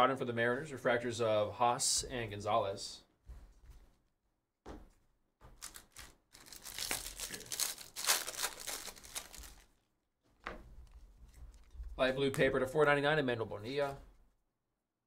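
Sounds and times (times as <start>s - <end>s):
foil wrapper crinkling: 5.6s - 9.8s.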